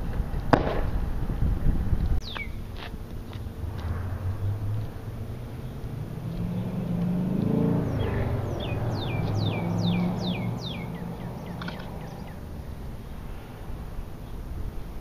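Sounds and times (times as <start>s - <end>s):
bird whistling: 2.2s - 2.6s, 7.8s - 12.4s
vehicle engine passing: 3.2s - 14.7s.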